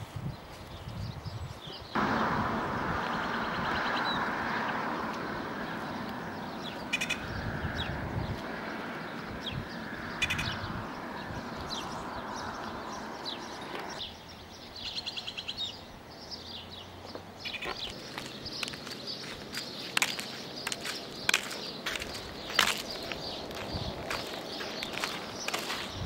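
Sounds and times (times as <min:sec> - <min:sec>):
birds chirping: 0:00.7 - 0:26.0
steady rushing noise: 0:02.0 - 0:14.0
bird trill: 0:05.4 - 0:08.0, 0:09.0 - 0:16.6.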